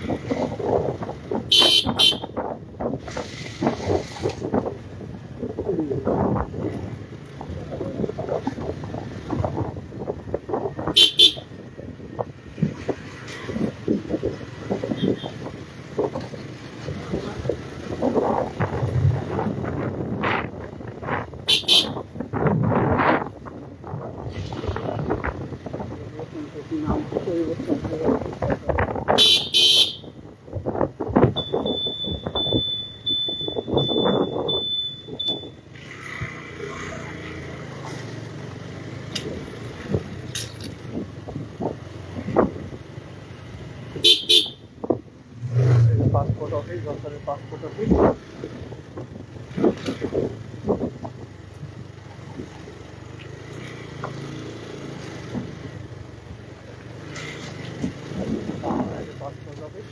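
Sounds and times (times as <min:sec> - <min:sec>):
motor scooter engine and road noise: 0:00.0 - 0:59.9
high electronic beep: 0:31.4 - 0:35.6.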